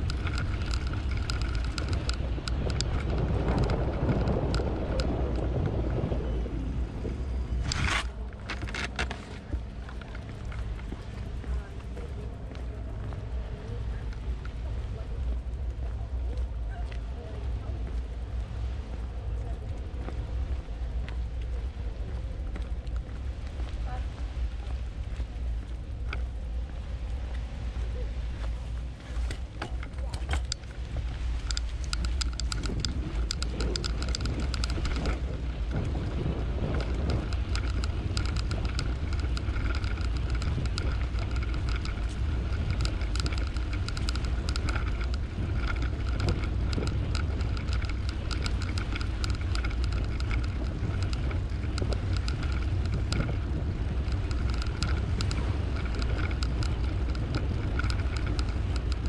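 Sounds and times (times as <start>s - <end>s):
bike clicks and rattles: 0.0s - 6.0s, 7.1s - 12.1s, 27.9s - 59.0s
steady whirring hum: 0.0s - 59.0s
tyres rolling on a path: 0.0s - 59.0s
wind on the microphone: 0.0s - 59.0s.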